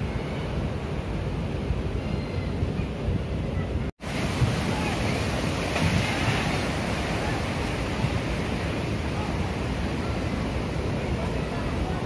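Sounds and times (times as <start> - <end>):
wind buffeting microphone: 0.0 - 12.0
waves breaking on beach: 4.0 - 12.0.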